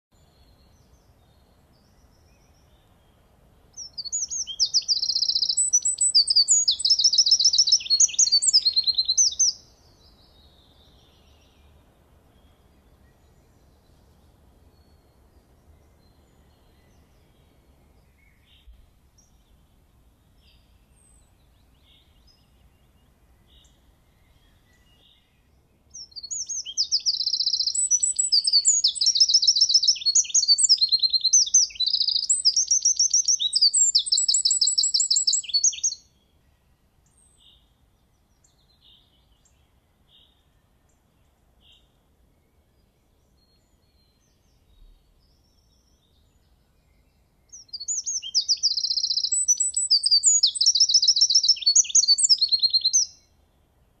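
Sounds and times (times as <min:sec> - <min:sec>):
wren singing rapid high trills: 0:03.7 - 0:13.2, 0:25.9 - 0:36.1, 0:47.5 - 0:53.3
faint short bird chirps: 0:03.8 - 0:11.7, 0:26.0 - 0:36.0, 0:45.9 - 0:53.3.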